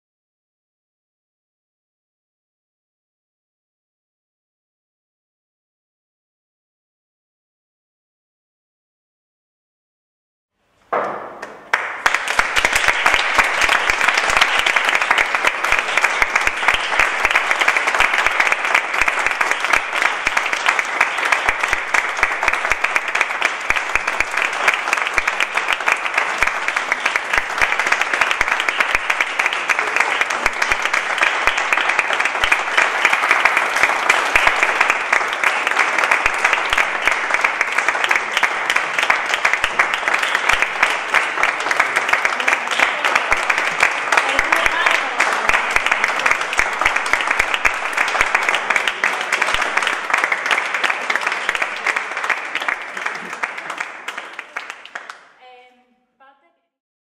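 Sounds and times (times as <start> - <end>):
audience applauding: 11.4 - 55.7.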